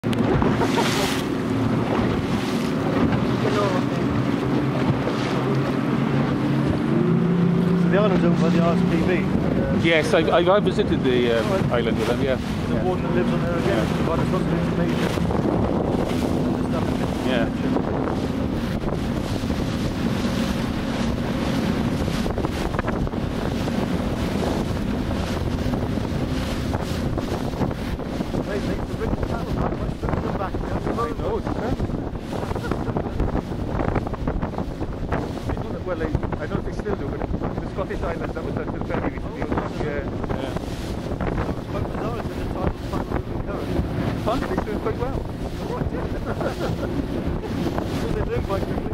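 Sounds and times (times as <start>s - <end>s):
boat engine drone: 0.0s - 48.9s
water slapping against hull: 0.0s - 48.9s
wind buffeting microphone: 0.0s - 48.9s.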